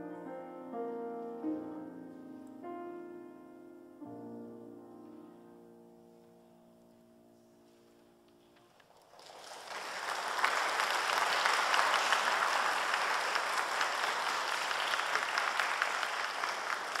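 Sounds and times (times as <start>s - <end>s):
piano chord: 0.0s - 8.4s
audience applauding: 8.8s - 17.0s.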